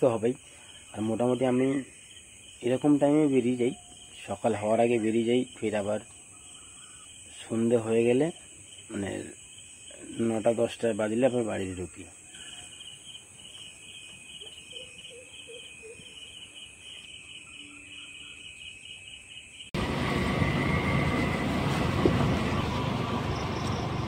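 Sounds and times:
insect chirping: 0:00.0 - 0:19.8, 0:23.2 - 0:24.0
vehicle travelling on wet road: 0:19.8 - 0:24.0.

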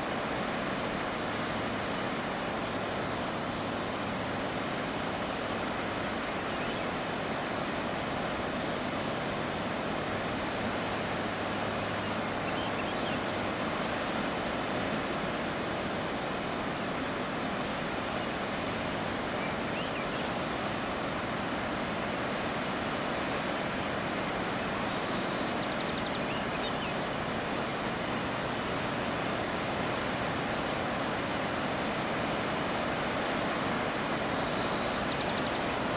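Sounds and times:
waterfall roaring: 0:00.0 - 0:35.9
bird chirping: 0:24.0 - 0:27.0, 0:33.5 - 0:35.9.

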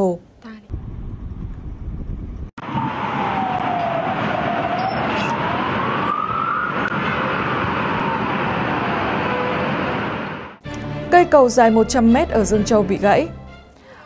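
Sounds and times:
low rumble: 0:00.7 - 0:03.0
emergency vehicle siren wailing: 0:02.6 - 0:10.6.

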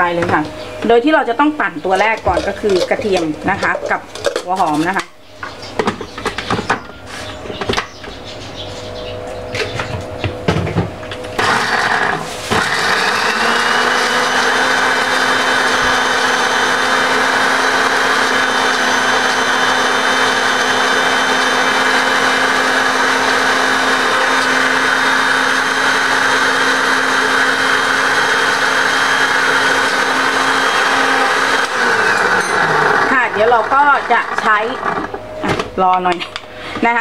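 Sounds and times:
blender motor chopping: 0:11.2 - 0:35.2.

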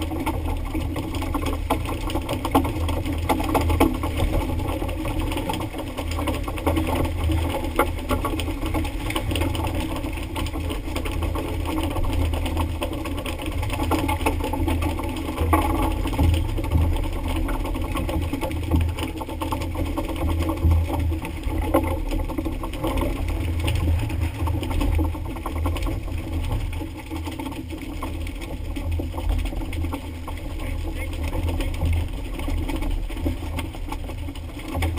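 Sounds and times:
boat engine droning: 0:00.0 - 0:34.9
sea water splashing against hull: 0:00.0 - 0:34.9.

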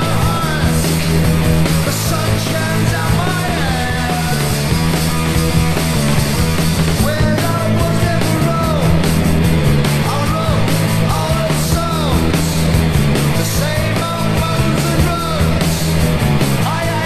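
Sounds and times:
distorted electric guitars: 0:00.0 - 0:17.0
punk rock band playing: 0:00.0 - 0:17.0.

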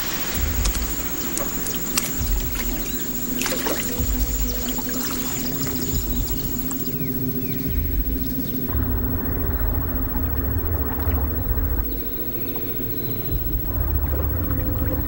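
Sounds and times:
low irregular thuds: 0:00.0 - 0:12.3
water sloshing and splashing: 0:00.0 - 0:15.0.

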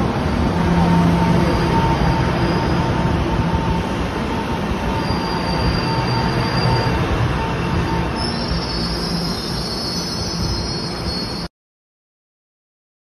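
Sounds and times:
train motors humming: 0:00.0 - 0:11.4
train wheels rumbling on rail: 0:00.0 - 0:11.5
high wheel squeal: 0:01.0 - 0:04.0, 0:04.6 - 0:11.5.

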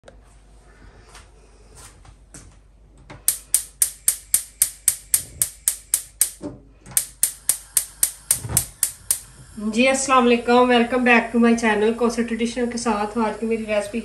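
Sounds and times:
gas hob igniter clicking: 0:03.3 - 0:10.0.

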